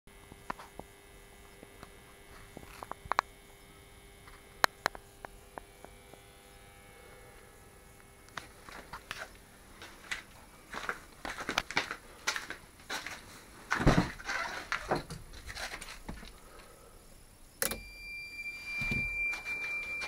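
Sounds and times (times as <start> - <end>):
footsteps on concrete floor: 8.4 - 16.4
scuffs rustles and knocks: 12.4 - 16.3.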